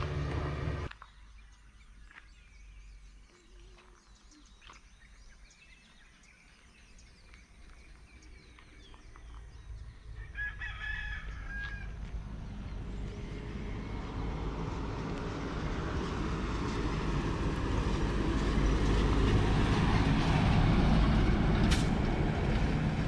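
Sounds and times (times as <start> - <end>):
low vehicle rumble: 0.0 - 1.5, 6.8 - 23.0
rooster crowing: 10.2 - 12.0.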